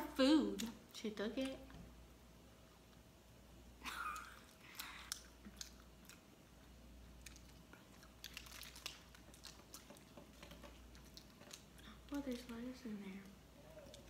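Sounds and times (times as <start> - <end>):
chewing food: 3.9 - 14.0.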